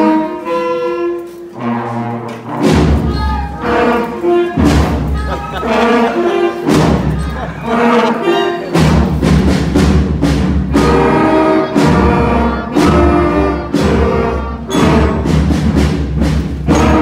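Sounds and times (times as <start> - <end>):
school band playing chords: 0.0 - 17.0
drum hits: 2.5 - 6.0, 6.6 - 8.0, 8.7 - 17.0.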